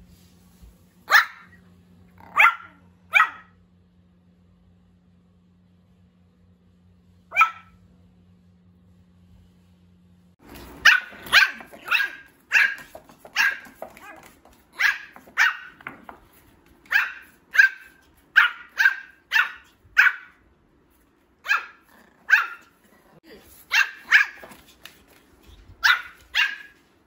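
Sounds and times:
puppy barking: 1.1s - 1.6s, 2.2s - 3.6s, 7.3s - 7.8s, 10.5s - 16.2s, 16.8s - 20.4s, 21.4s - 22.8s, 23.4s - 24.6s, 25.8s - 26.8s.

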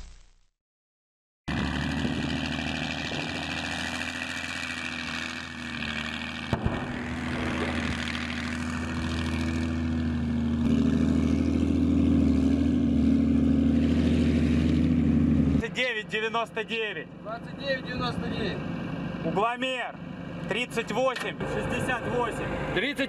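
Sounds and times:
diesel engine running: 1.5s - 23.0s.

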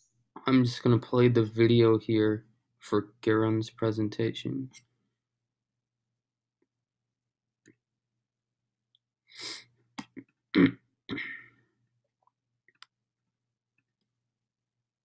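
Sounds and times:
person clearing throat: 10.1s - 11.6s.

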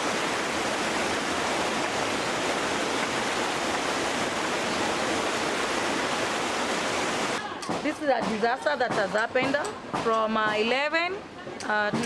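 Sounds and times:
floodwater rushing: 0.0s - 7.4s.

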